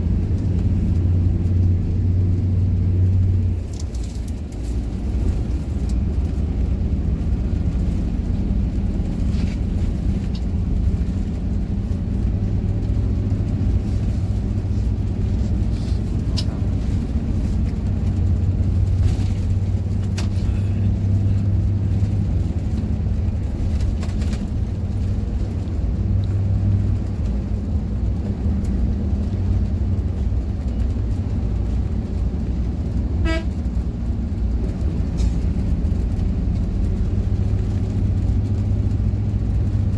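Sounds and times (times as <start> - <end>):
bus engine and road drone: 0.0 - 39.9
bus horn toot: 33.2 - 33.7.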